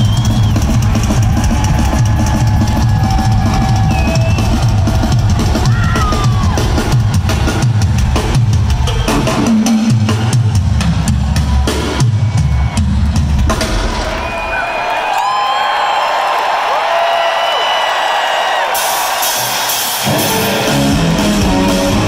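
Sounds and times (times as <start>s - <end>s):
snare drum rolls: 0.0s - 8.6s
bass drum: 0.0s - 14.2s
live rock band: 0.0s - 14.5s, 18.7s - 22.0s.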